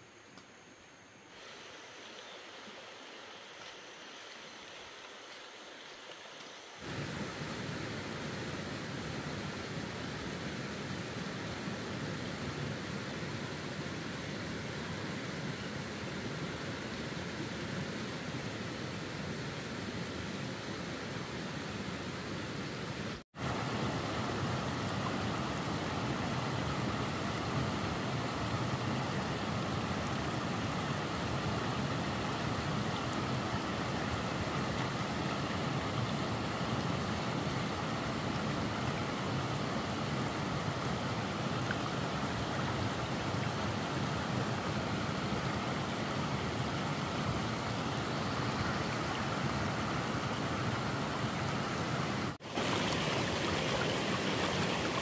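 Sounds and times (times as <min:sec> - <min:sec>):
running water rushing: 0:01.0 - 0:55.0.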